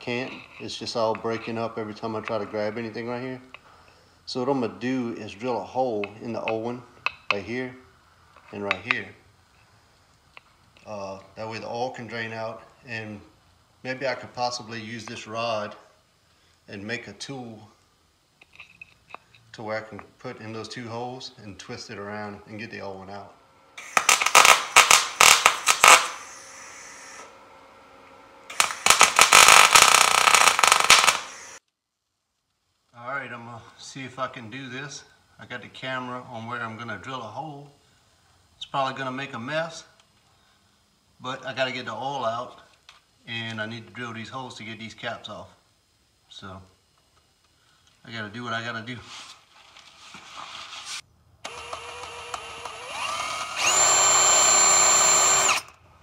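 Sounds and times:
power drill drilling plastic: 23.8 - 27.3, 28.5 - 31.6, 51.4 - 55.8
arc welder crackling: 23.8 - 33.0, 50.7 - 56.0.

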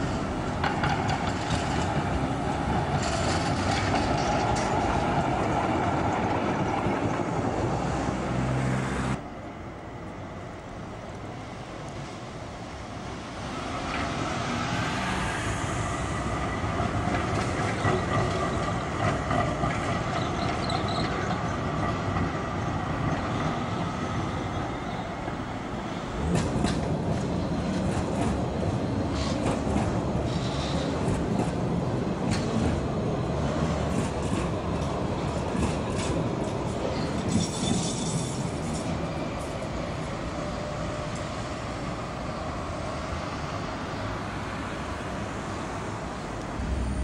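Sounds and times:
wheels clacking over rail joints: 0.0 - 7.7, 16.1 - 25.5, 26.2 - 39.7
tram wheel squeal: 0.0 - 8.1, 13.5 - 31.6, 35.3 - 44.1
heavy tram passing close: 0.0 - 47.0
tram rumble: 0.0 - 47.0.

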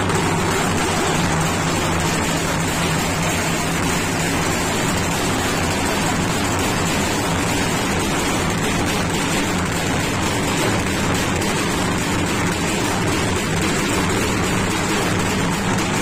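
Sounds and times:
drums played with sticks: 0.0 - 16.0.

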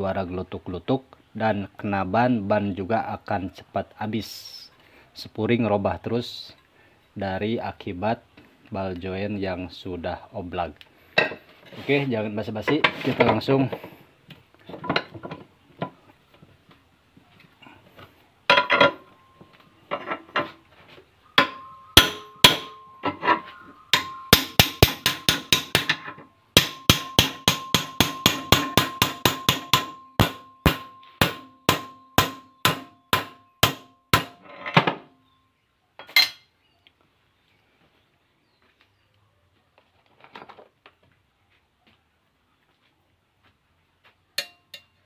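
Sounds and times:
loose metal clanks: 18.5 - 19.2
hammer striking metal: 21.4 - 34.4, 44.4 - 44.9.

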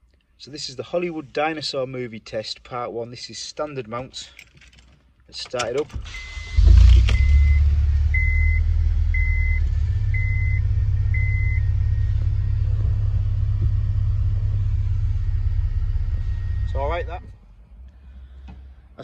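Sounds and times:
car engine starting and idling: 5.4 - 18.8
car warning chime beeping: 6.0 - 12.0.

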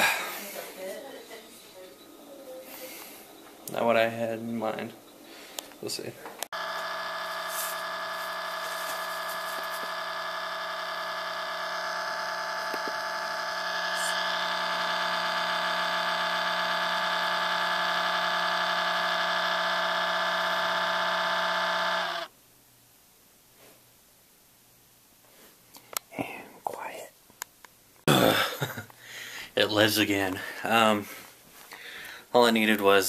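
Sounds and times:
computer cooling fan whine: 2.3 - 22.4.

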